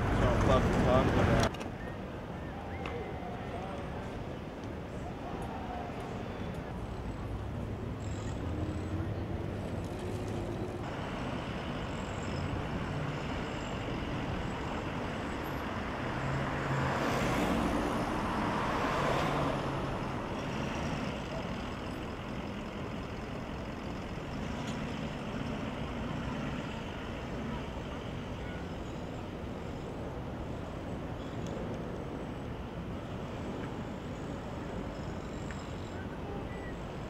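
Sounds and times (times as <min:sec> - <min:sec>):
vehicles passing: 0:00.0 - 0:37.0
loud vehicle passing: 0:10.9 - 0:27.7.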